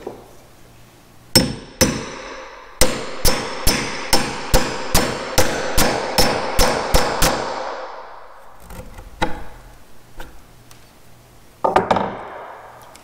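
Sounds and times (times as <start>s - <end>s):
hammer striking steel chisel: 1.4s - 8.1s.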